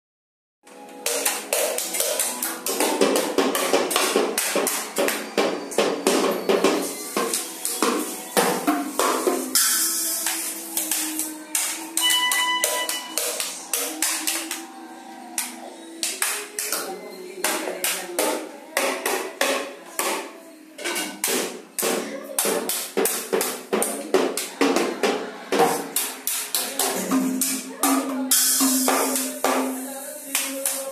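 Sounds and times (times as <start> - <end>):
child bashing toy drums: 1.1 - 11.0, 25.6 - 29.9.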